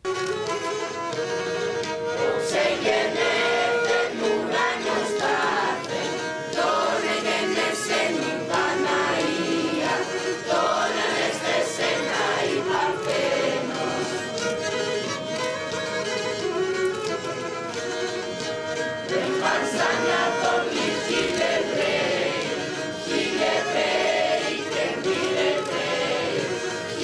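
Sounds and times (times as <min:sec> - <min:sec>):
group singing carols: 0:02.2 - 0:15.6, 0:18.9 - 0:27.0.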